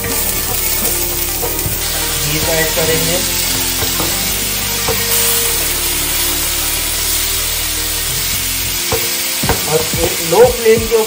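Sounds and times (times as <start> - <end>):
background music: 0.0 - 11.0
beef mince sizzling: 0.0 - 11.0.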